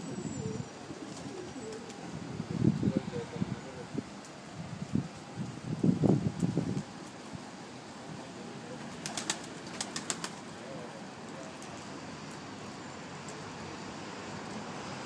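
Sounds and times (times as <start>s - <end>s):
background hiss: 0.0s - 15.0s
pigeons clicking on concrete: 8.9s - 10.6s.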